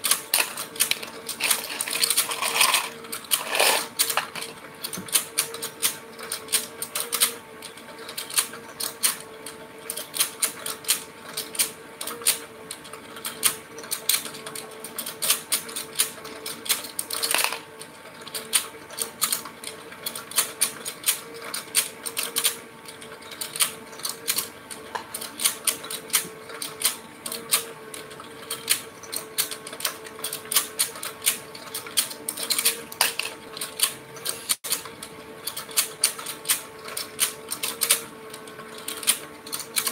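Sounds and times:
steady motor hum: 0.0 - 8.0
plastic clicking and rattling: 0.0 - 9.2, 9.9 - 17.7, 18.3 - 39.9.

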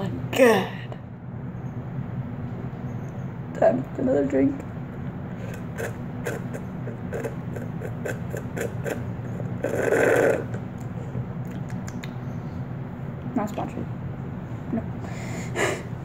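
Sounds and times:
person gulping and swallowing: 5.5 - 10.9.

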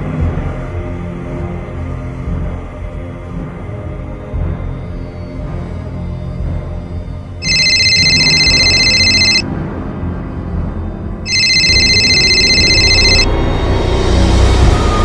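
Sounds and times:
ominous background music: 0.0 - 15.0
telephone ringing: 7.4 - 9.4, 11.3 - 13.6.

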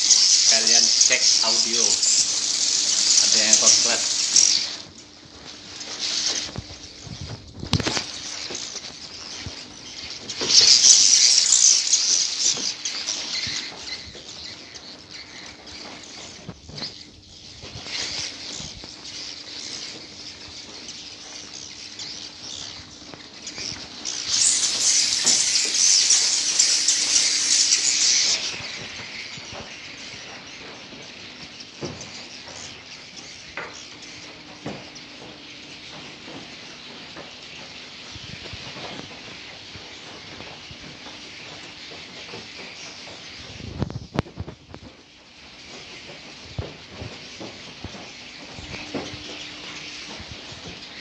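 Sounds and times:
swiftlets chittering and twittering: 0.0 - 51.0.

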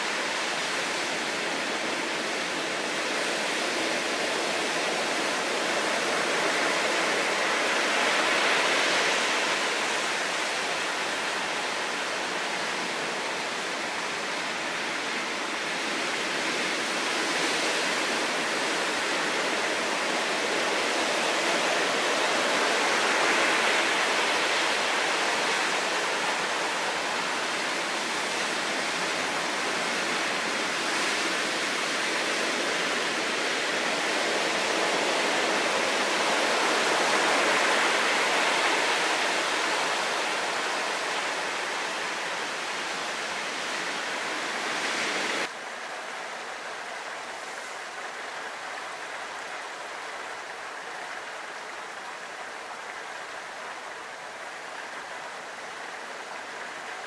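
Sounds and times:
heavy surf breaking on rocks: 15.8 - 45.5.

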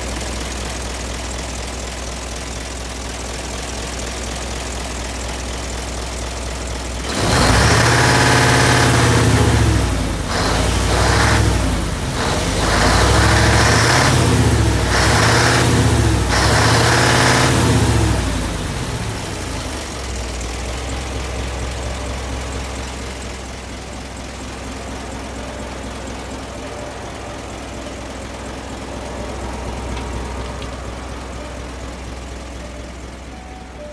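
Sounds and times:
truck diesel engine revving: 6.9 - 33.6.

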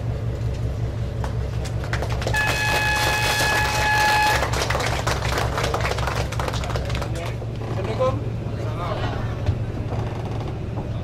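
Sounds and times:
low engine rumble: 0.0 - 11.0
ship horn blast: 2.3 - 4.8.

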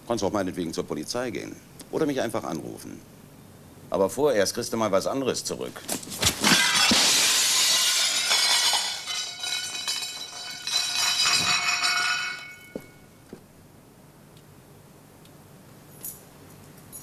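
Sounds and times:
porcelain crockery smashing: 6.0 - 12.9.

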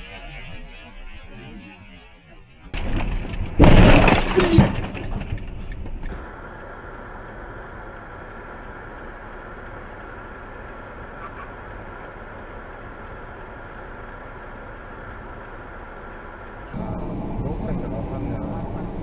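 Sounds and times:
metal crunching and scraping: 0.0 - 6.2
vehicle crash: 0.0 - 6.4
road noise inside moving car: 2.3 - 19.0.

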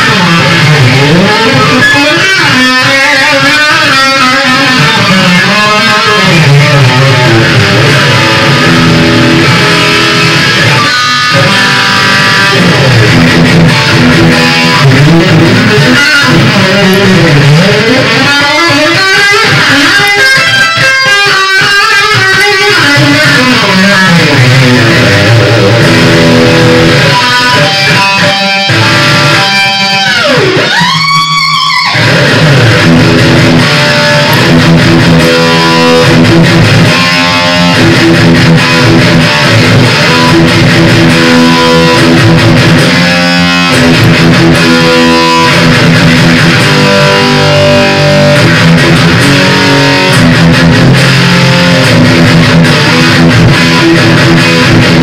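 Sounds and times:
electric guitar riffs: 0.0 - 55.0.

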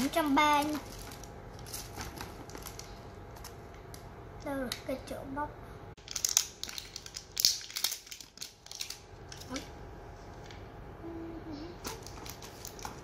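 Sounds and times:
paper and wrapping crackling: 0.0 - 4.0, 6.0 - 9.7, 11.8 - 13.0.

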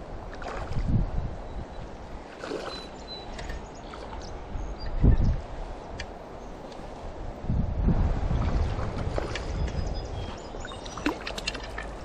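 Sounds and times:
creek water rushing: 0.0 - 4.8, 5.4 - 12.0
wind rumbling on microphone: 0.0 - 12.0.

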